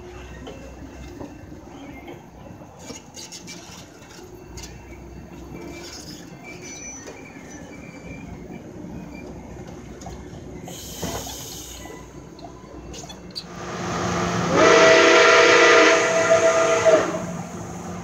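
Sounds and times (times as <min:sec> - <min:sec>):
steam hiss: 0:10.7 - 0:12.1
steam locomotive chime whistle: 0:13.5 - 0:18.0.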